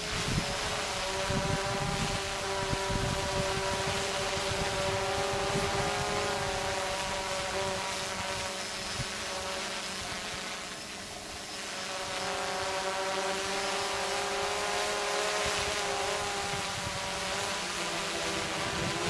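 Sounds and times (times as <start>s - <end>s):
wind rumbling on microphone: 0.0s - 9.4s, 15.3s - 19.0s
quadcopter propellers buzzing: 0.0s - 19.0s.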